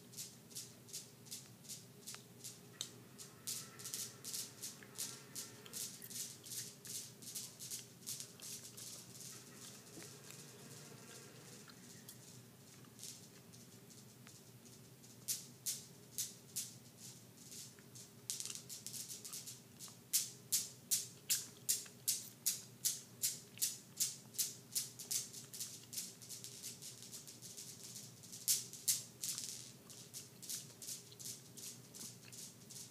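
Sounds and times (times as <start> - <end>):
metal balls clacking: 2.1 - 10.6, 28.4 - 32.9.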